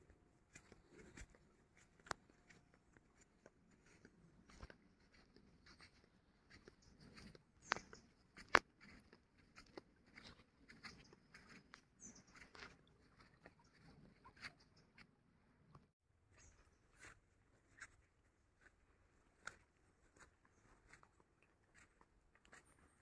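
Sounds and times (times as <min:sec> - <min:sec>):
faint clicks and ticks: 0:00.0 - 0:15.9.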